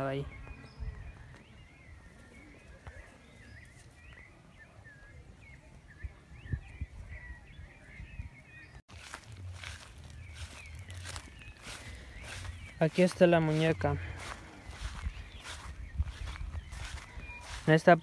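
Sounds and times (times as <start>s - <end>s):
faint rural background noise: 0.0s - 18.0s
small birds chirping: 0.0s - 18.0s.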